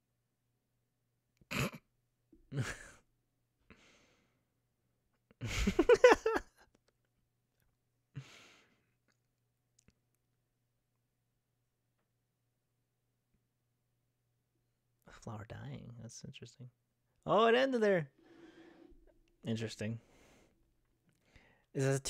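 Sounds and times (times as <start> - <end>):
man laughing: 2.6 - 3.0, 5.4 - 6.6.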